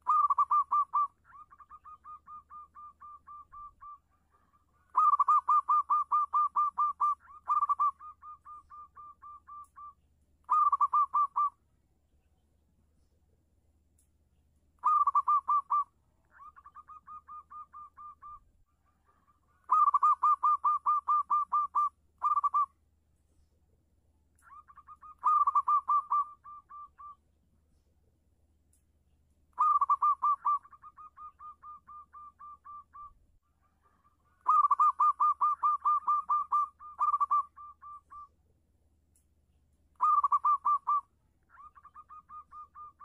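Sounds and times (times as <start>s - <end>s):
dove cooing: 0.0s - 11.6s, 14.8s - 22.7s, 24.4s - 27.2s, 29.6s - 38.3s, 40.0s - 43.0s.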